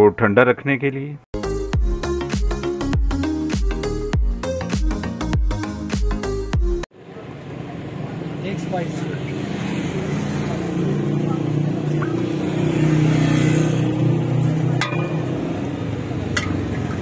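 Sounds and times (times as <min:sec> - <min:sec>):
vehicle engine passing: 0:07.0 - 0:17.0.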